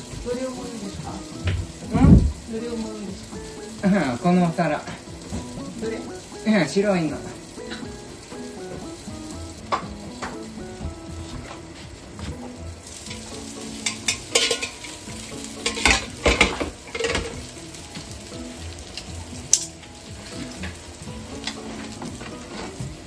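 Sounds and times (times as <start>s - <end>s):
food sizzling in a frying pan: 0.0s - 23.0s
utensils clattering and scraping: 12.4s - 17.6s, 18.9s - 23.0s.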